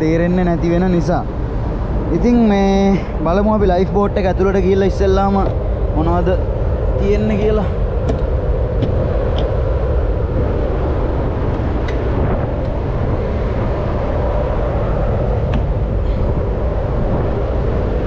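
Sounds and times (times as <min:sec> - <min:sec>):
ship machinery rumble and hum: 0:00.0 - 0:18.0
wind on microphone: 0:00.0 - 0:18.0.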